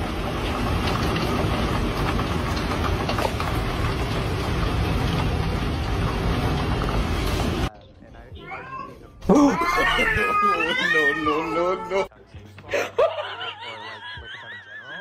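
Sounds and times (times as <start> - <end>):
heavy rain falling: 0.0 - 7.7.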